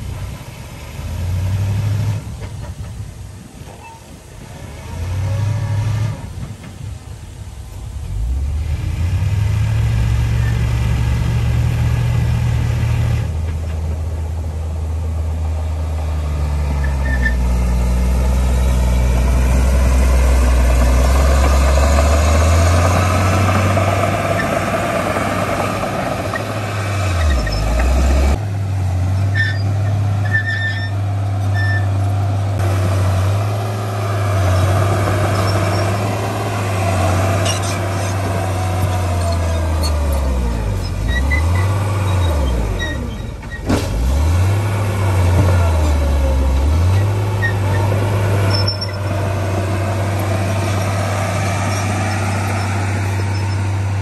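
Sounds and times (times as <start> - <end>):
short high squeaks: 3.7 - 4.2, 16.8 - 17.5, 27.1 - 28.0, 29.3 - 32.0, 37.4 - 38.2, 38.9 - 43.7, 46.9 - 49.2, 51.6 - 53.8
heavy diesel machinery running: 7.9 - 54.0.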